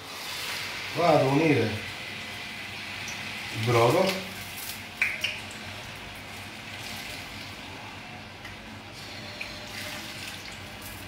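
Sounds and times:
vegetables sizzling in a frying pan: 0:00.0 - 0:07.6.

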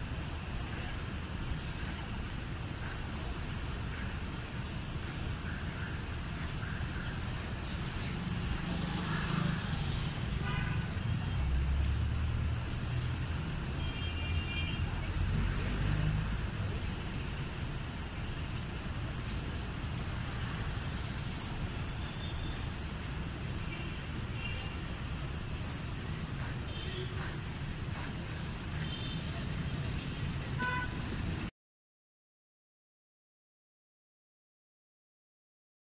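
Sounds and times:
passing vehicle engines: 0:06.4 - 0:31.5.

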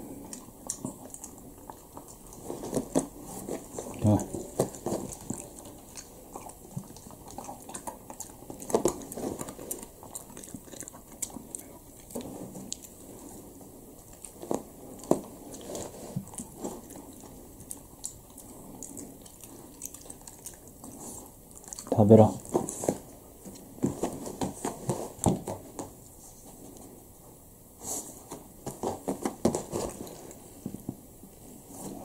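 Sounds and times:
dog crunching dry kibble: 0:00.1 - 0:26.0.

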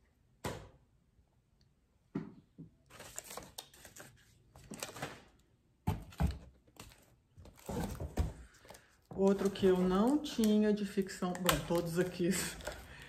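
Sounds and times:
books being handled: 0:02.9 - 0:05.3, 0:05.9 - 0:10.6
packaging rustling and crinkling: 0:02.9 - 0:05.4, 0:06.0 - 0:13.0.

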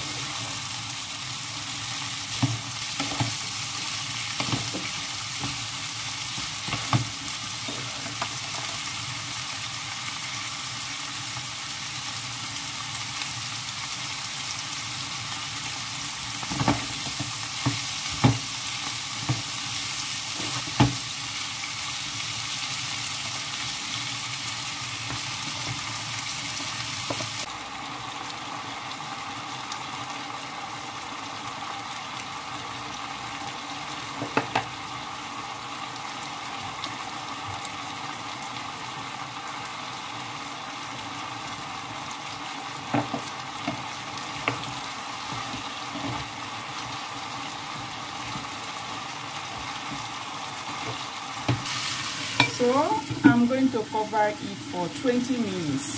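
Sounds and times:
vegetables sizzling in a frying pan: 0:00.0 - 0:55.9.

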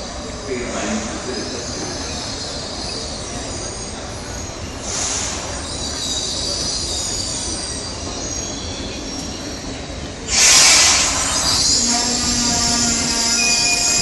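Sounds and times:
low train rumble: 0:00.0 - 0:14.0
train wheels squealing: 0:00.0 - 0:14.0
burst of hiss: 0:04.8 - 0:05.6, 0:10.3 - 0:13.7.

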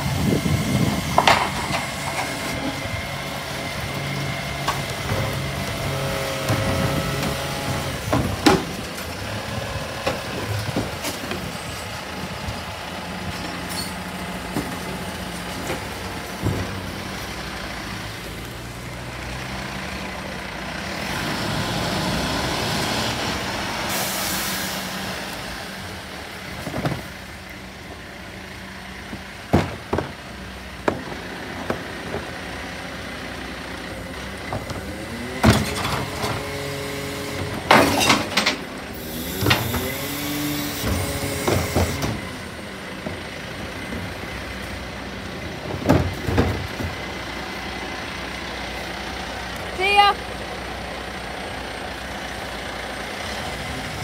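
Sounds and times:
truck engine running: 0:00.0 - 0:54.0
air brakes hissing: 0:23.8 - 0:25.1.

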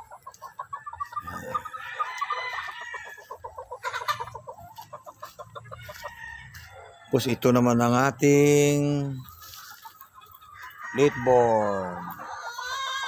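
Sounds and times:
chickens clucking: 0:00.0 - 0:13.0
rooster crowing: 0:01.3 - 0:03.2, 0:05.9 - 0:07.2.

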